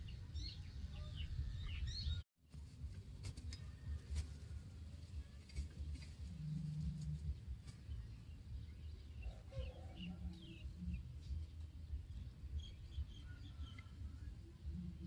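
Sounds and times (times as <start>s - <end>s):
low steady rumble: 0.0s - 15.0s
small birds chirping: 5.2s - 15.0s.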